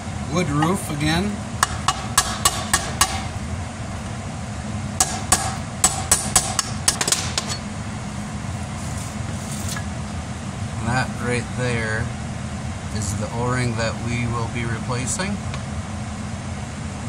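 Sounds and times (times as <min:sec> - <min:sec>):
steady low hum: 0:00.0 - 0:17.0
hammer tapping metal punch: 0:01.6 - 0:03.4, 0:05.0 - 0:07.7.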